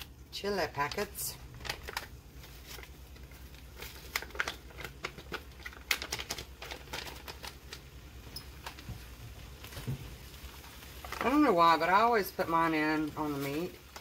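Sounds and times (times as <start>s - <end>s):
seasoning packets crinkling: 0.8s - 14.0s.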